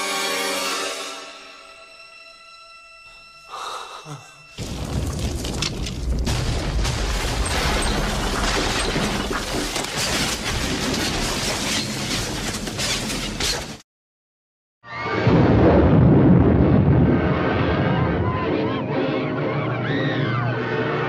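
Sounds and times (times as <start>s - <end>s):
deep rumbling of collapse: 4.6s - 11.6s, 15.2s - 18.6s
falling rock crashes and cracks: 4.6s - 13.0s.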